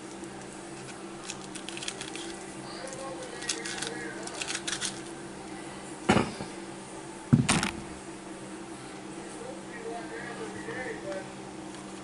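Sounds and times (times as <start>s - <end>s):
loud knocks: 7.3s - 7.9s.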